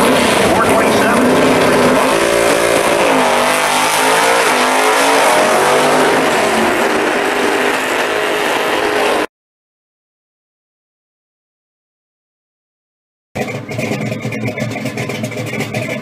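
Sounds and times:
drag cars racing at full throttle: 0.0s - 9.3s, 13.4s - 16.0s.

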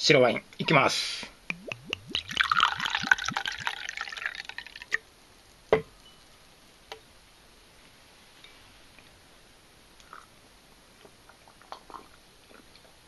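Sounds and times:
wine glugging into a glass: 1.5s - 5.0s.

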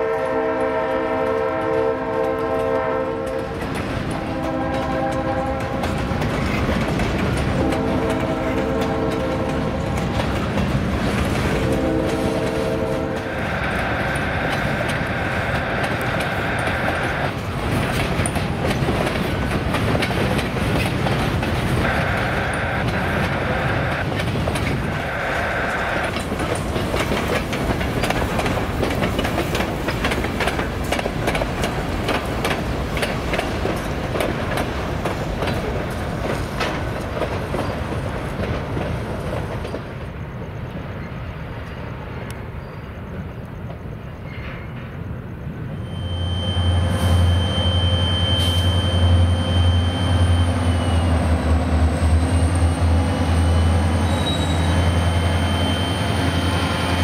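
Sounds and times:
train horn chord: 0.0s - 3.6s, 4.2s - 5.9s, 7.5s - 10.0s, 11.5s - 13.5s
freight train rumble: 0.0s - 57.0s
wheels clattering over rail joints: 2.1s - 13.2s, 14.3s - 21.8s, 26.1s - 41.0s
higher steady tone: 45.8s - 51.4s.

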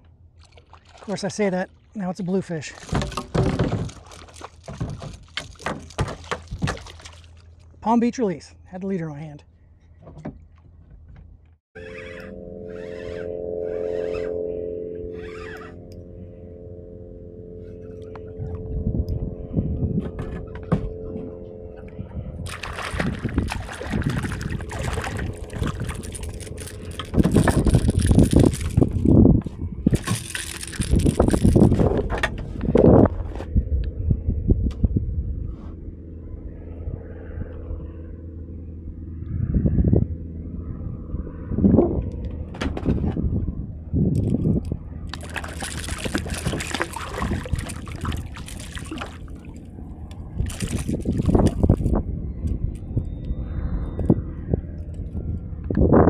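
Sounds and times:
fish splashing in water: 0.4s - 1.1s, 2.8s - 7.7s, 22.5s - 28.9s, 45.1s - 49.7s, 50.4s - 51.9s
low rumble: 8.5s - 56.0s
heavy low bumps: 12.2s - 56.0s.

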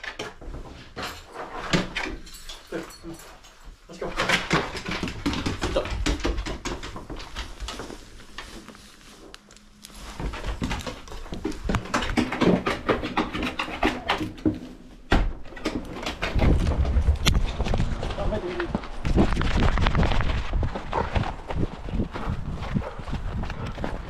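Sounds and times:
collar and leash rattling: 0.0s - 8.6s, 10.0s - 14.8s, 15.4s - 24.0s.

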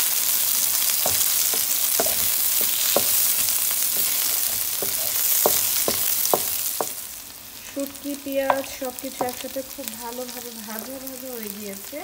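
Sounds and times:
food sizzling in oil: 0.0s - 12.0s
wooden spatula scraping pan: 0.7s - 7.0s.

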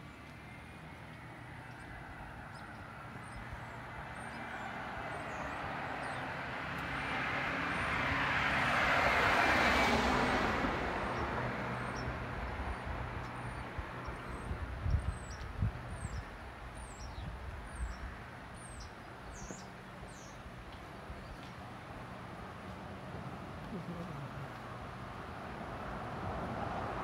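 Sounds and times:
car driving past: 4.0s - 12.8s.

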